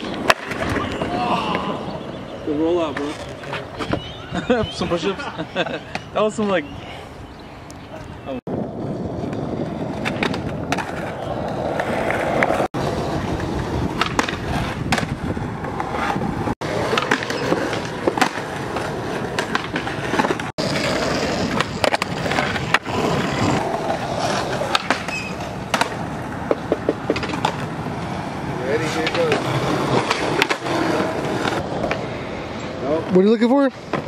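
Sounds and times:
skateboard clacking on ground: 0:00.0 - 0:01.8, 0:09.2 - 0:28.2, 0:28.8 - 0:32.1
skateboard wheels rolling on concrete: 0:00.0 - 0:34.0.

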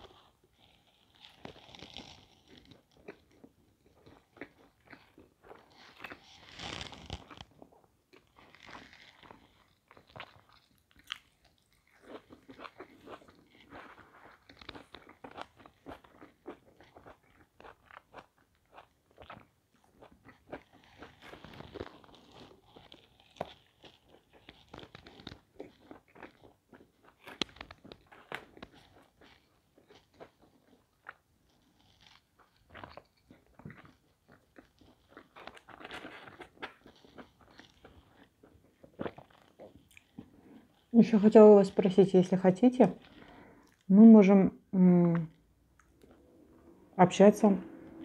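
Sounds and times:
person chewing crunchy crust: 0:00.0 - 0:41.4, 0:42.9 - 0:43.9, 0:45.2 - 0:46.6.

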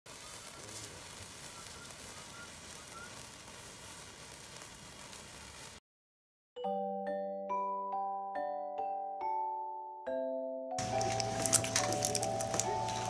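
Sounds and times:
sparkler hissing and crackling: 0:00.1 - 0:05.8, 0:10.8 - 0:13.0
chiming glockenspiel tune: 0:06.6 - 0:13.0.

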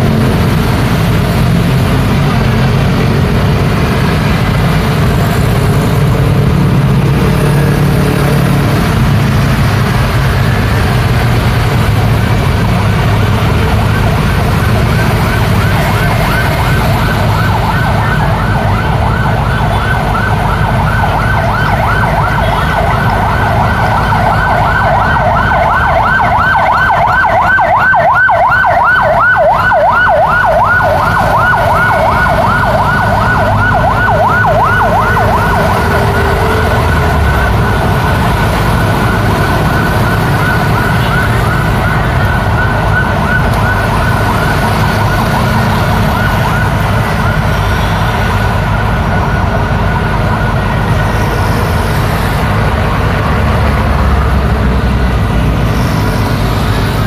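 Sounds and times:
city traffic rumble: 0:00.0 - 0:57.0
emergency siren yelping: 0:00.0 - 0:57.0.

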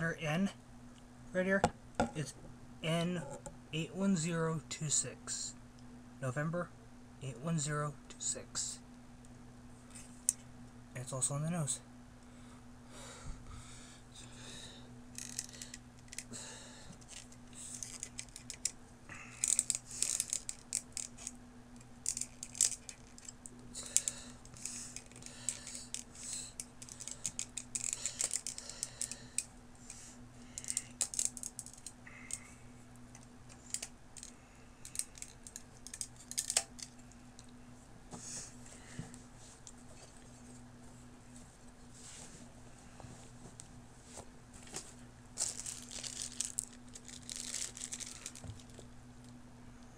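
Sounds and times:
steady low hum: 0:00.0 - 0:49.9
plastic parts clicking and tapping: 0:17.0 - 0:18.8, 0:22.0 - 0:23.4, 0:24.0 - 0:29.5, 0:33.2 - 0:37.5.

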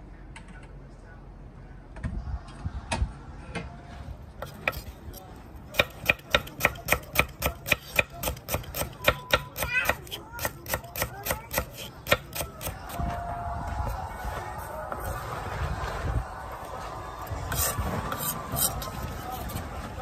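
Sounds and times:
knife chopping on wooden board: 0:04.4 - 0:04.9, 0:05.7 - 0:12.8.

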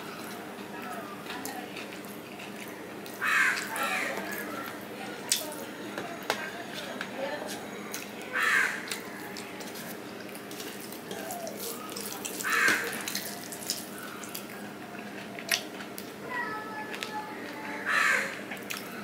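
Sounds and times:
wet chewing: 0:00.0 - 0:05.6, 0:06.7 - 0:16.2, 0:18.3 - 0:19.0
crow cawing: 0:03.2 - 0:04.7, 0:08.3 - 0:09.1, 0:12.4 - 0:13.1, 0:17.8 - 0:18.4.

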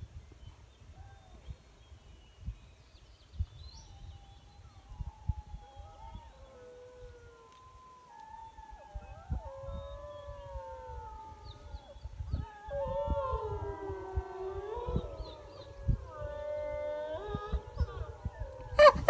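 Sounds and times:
wolves howling: 0:04.0 - 0:19.0.

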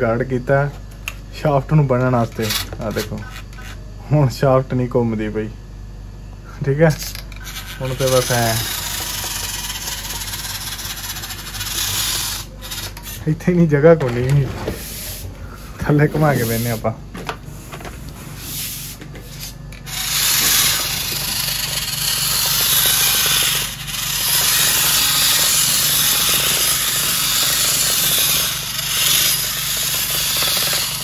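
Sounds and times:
model tractor motor rasping: 0:07.0 - 0:13.3, 0:19.4 - 0:31.0
tyres scrubbing on tiles: 0:18.2 - 0:31.0.

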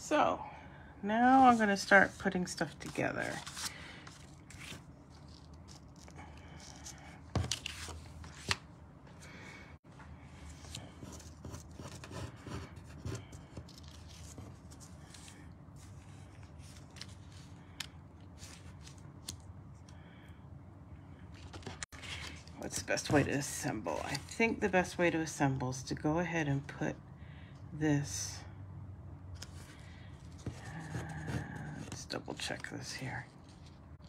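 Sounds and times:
paper rustling: 0:01.4 - 0:08.6, 0:10.4 - 0:19.4.

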